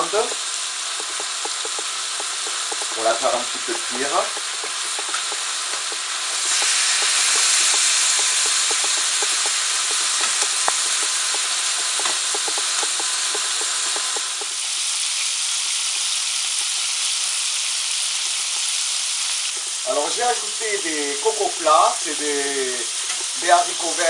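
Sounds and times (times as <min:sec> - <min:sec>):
meat sizzling in oil: 0:00.0 - 0:24.0
metal spatula clicking and scraping: 0:01.0 - 0:14.5.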